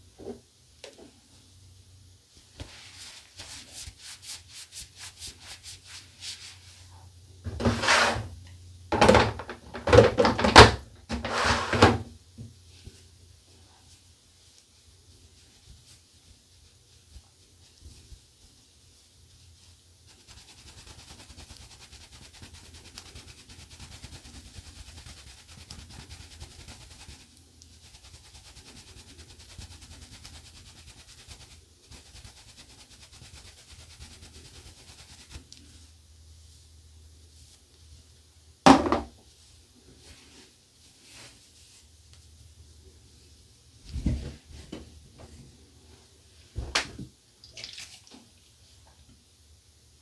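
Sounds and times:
brush scrubbing on towel: 2.4s - 7.1s, 12.7s - 38.2s, 39.3s - 44.0s.

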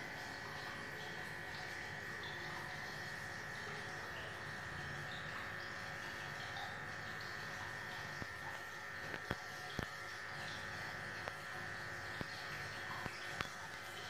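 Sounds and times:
aquarium pump humming: 0.0s - 14.0s
bubbles fizzing: 0.0s - 14.0s.

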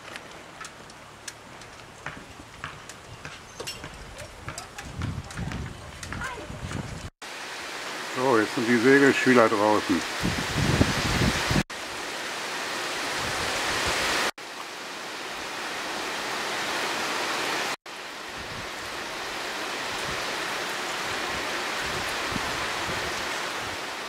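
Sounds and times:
heavy rain on water: 7.2s - 24.0s.

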